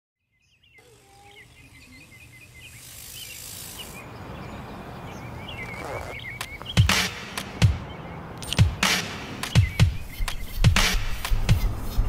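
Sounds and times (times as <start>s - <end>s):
small birds chirping: 0.2s - 12.0s.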